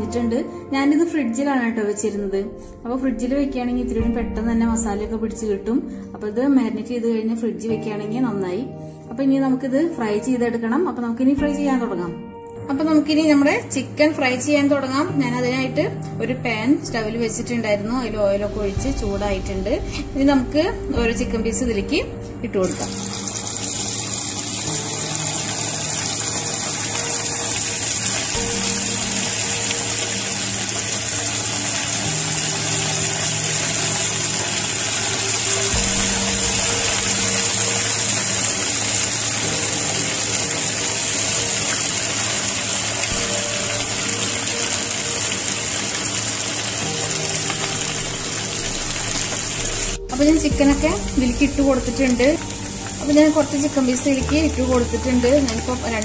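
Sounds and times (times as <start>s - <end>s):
chicken sizzling in hot oil: 22.7s - 56.0s.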